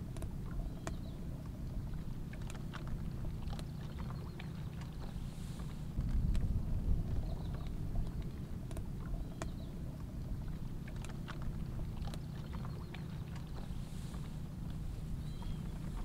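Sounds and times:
low fire rumble: 5.7s - 8.6s.

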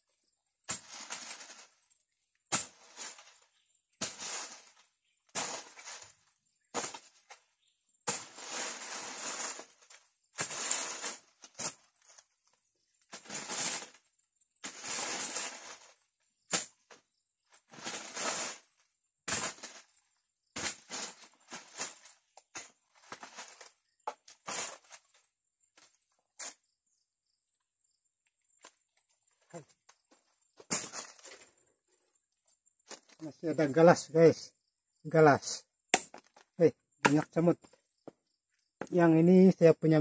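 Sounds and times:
raking dry leaves and twigs: 0.7s - 1.8s, 2.5s - 17.0s, 17.6s - 25.2s, 30.6s - 31.5s.

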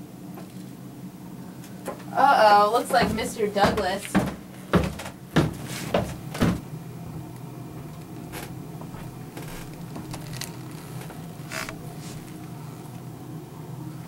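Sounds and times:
steady low hum: 0.0s - 14.0s
sharp knocks: 2.9s - 6.6s.

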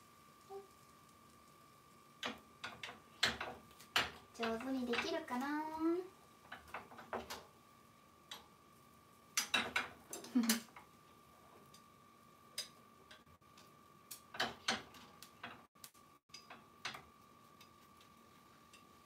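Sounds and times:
chopsticks tapping a pan: 2.2s - 5.6s, 9.3s - 10.9s, 12.5s - 19.0s.

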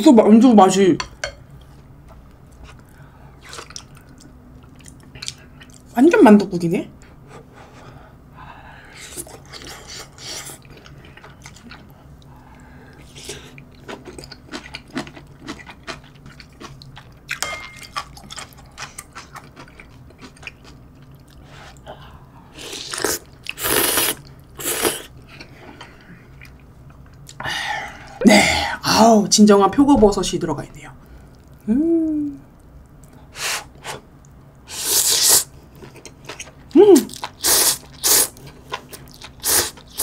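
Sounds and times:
person chewing: 2.5s - 5.8s, 9.0s - 12.3s, 12.9s - 21.9s, 22.6s - 27.4s, 34.2s - 40.0s
person slurping noodles: 22.6s - 25.1s, 37.3s - 38.3s.

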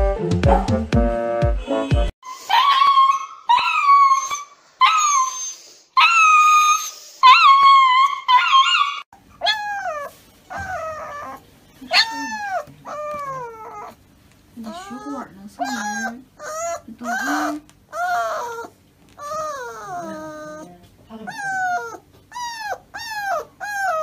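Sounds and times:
puppy crying: 2.3s - 14.0s, 14.6s - 24.0s
dog howling: 6.0s - 14.0s, 14.7s - 20.7s.

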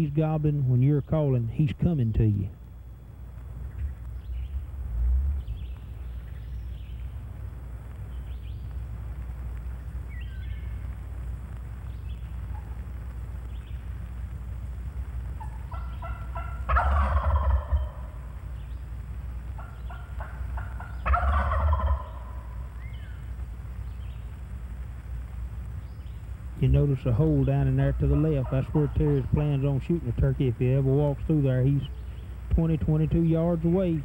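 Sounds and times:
turkey gobbling: 12.5s - 12.8s, 15.4s - 18.7s, 19.6s - 23.2s, 27.2s - 30.3s
turkey call yelps: 15.4s - 18.4s, 19.6s - 23.2s, 27.9s - 29.3s.

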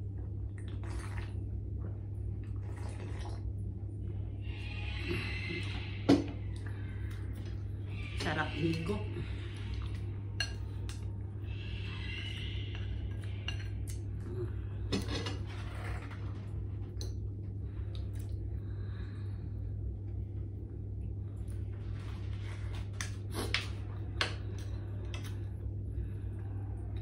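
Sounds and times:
steady low hum: 0.0s - 27.0s
cutlery clinking on ceramic bowls: 10.4s - 10.7s.

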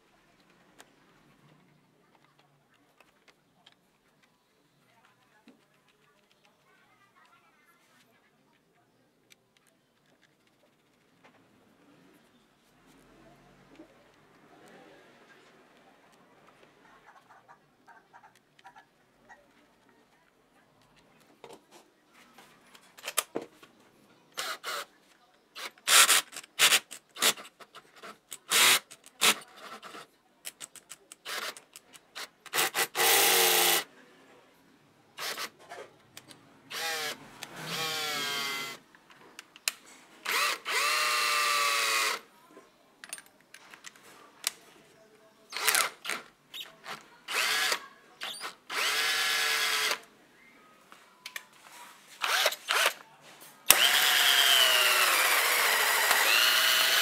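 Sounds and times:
cordless drill motor whine: 36.7s - 38.8s, 40.3s - 42.2s, 47.3s - 50.0s, 53.7s - 57.0s
drill trigger clicks: 52.2s - 53.0s, 53.7s - 57.0s.

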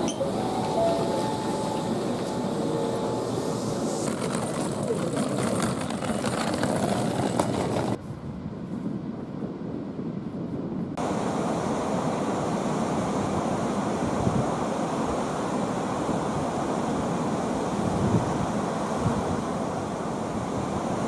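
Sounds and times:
faint steady tones: 0.0s - 4.0s
busy train station noise: 0.0s - 9.8s.

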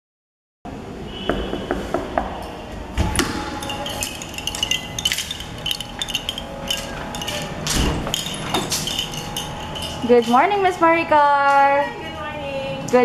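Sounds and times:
small metallic clinks: 3.4s - 10.7s.

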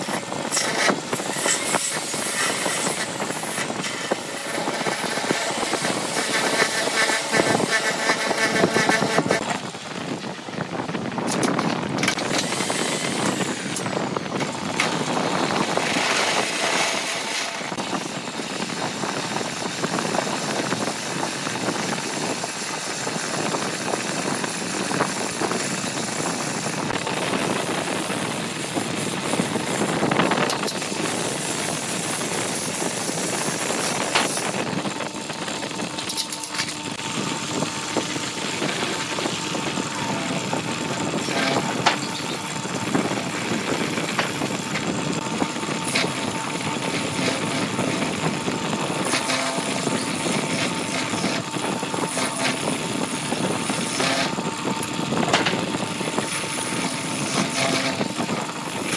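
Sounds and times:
drill bit grinding into workpiece: 0.0s - 9.7s, 11.2s - 19.7s, 28.6s - 58.9s
lathe motor hum: 0.0s - 58.9s
chisel scraping on lathe: 15.5s - 17.8s, 38.4s - 42.6s, 53.6s - 54.4s, 56.2s - 58.2s.

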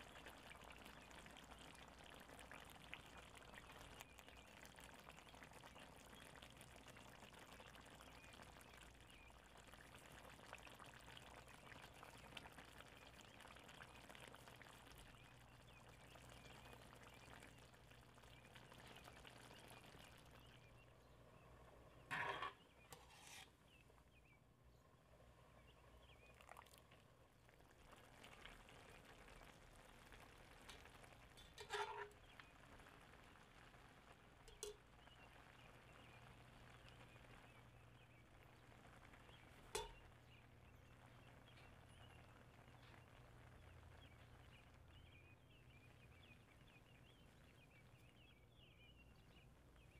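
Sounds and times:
curry sizzling in pan: 0.0s - 20.8s, 22.0s - 23.9s, 27.6s - 45.0s
utensil clinking on metal pan: 31.4s - 32.1s, 34.5s - 34.8s, 39.7s - 40.0s.

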